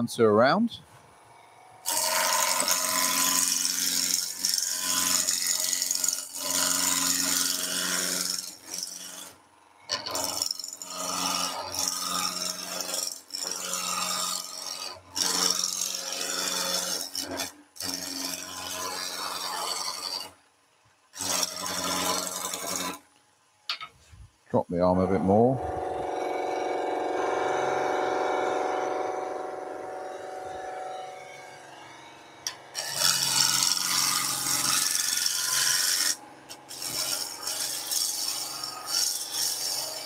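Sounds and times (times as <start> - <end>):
lathe tool scraping wood: 1.9 - 18.3, 25.6 - 40.0
wood lathe humming: 25.2 - 39.5.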